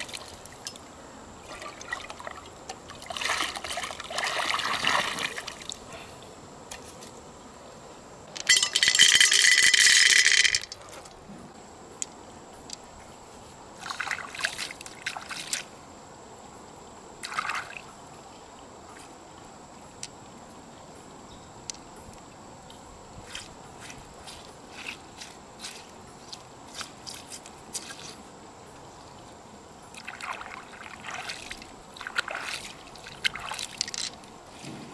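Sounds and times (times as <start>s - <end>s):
pearls rattling: 8.4s - 10.8s, 33.7s - 34.2s.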